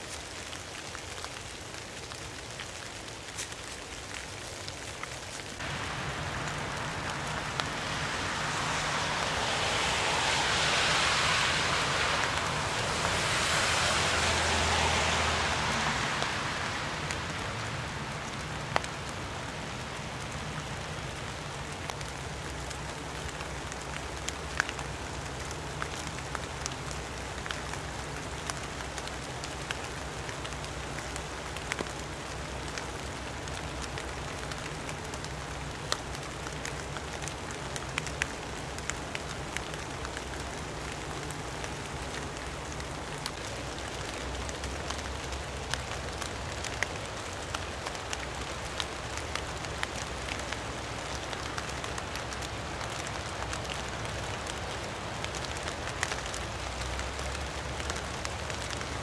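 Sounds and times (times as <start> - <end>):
rain on leaves and trees: 0.0 - 59.0
sharp water drips: 0.2 - 59.0
loud rushing sound: 5.6 - 18.1.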